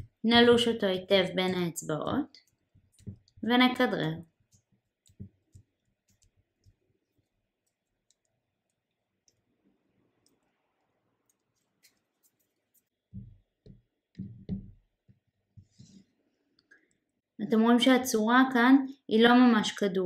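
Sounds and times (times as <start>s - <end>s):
hands kneading sugar paste: 0.0s - 10.6s, 11.2s - 14.1s.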